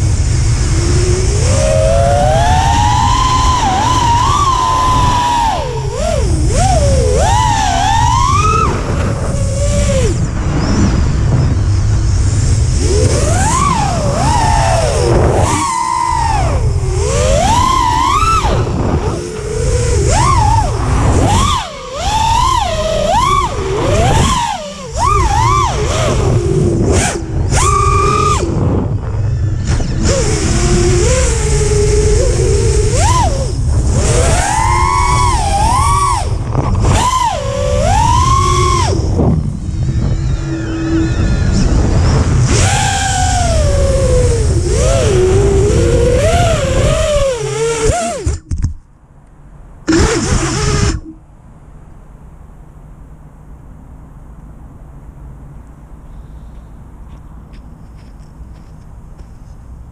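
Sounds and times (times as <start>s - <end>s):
wind buffeting microphone: 0.0s - 48.7s
drone motors and propellers whining: 0.0s - 59.9s.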